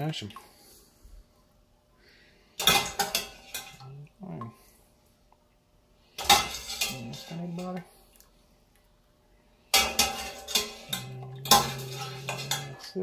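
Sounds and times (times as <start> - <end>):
kitchenware clattering: 2.6 - 4.0, 6.1 - 7.8, 9.7 - 13.0.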